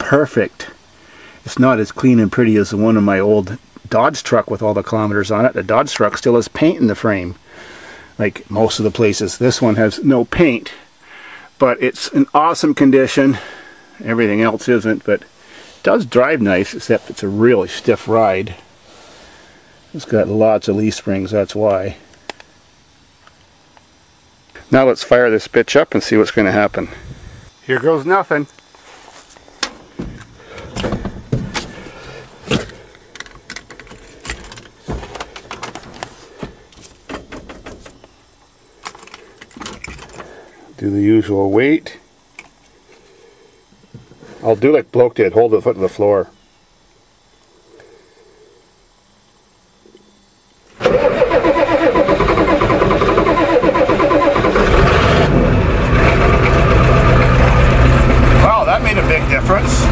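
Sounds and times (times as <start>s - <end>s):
handling clicks and knocks: 32.5s - 38.2s
diesel engine running: 50.8s - 59.9s
starter cranking: 50.8s - 59.9s.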